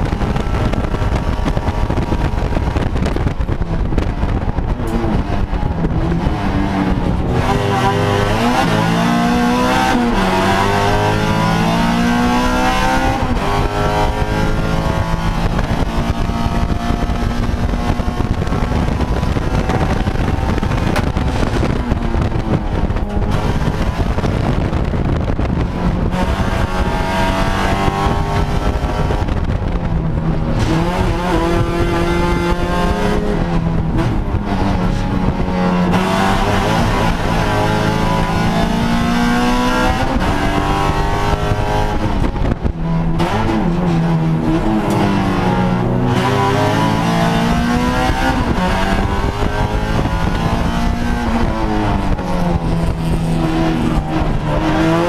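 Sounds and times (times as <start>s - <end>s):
car engine revving hard: 0.0s - 55.0s
road noise rushing: 0.0s - 55.0s.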